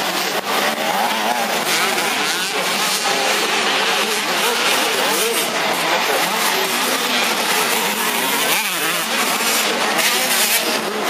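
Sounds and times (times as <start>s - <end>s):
motocross bike engines revving: 0.0s - 11.0s.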